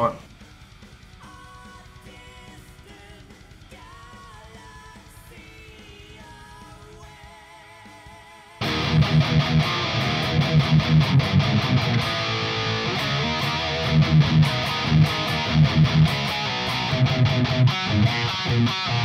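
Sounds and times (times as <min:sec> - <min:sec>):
electric guitar chugging riff: 0:00.0 - 0:07.2, 0:08.0 - 0:19.0
electric guitar chord ringing: 0:08.6 - 0:19.0.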